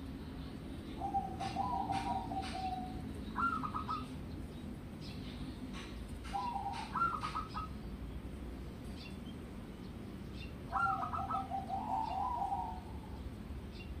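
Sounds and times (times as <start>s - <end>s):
dove cooing: 0.9s - 4.2s, 6.2s - 7.8s, 10.7s - 13.2s.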